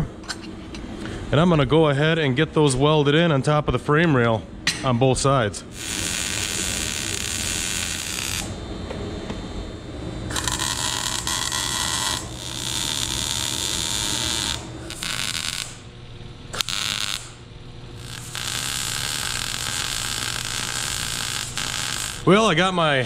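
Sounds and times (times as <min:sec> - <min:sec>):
welding arc buzzing and crackling: 0:05.6 - 0:23.0.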